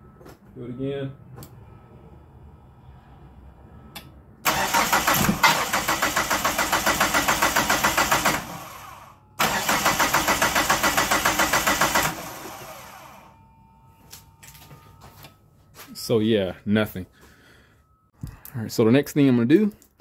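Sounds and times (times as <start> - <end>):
starter cranking engine: 4.5 - 13.1.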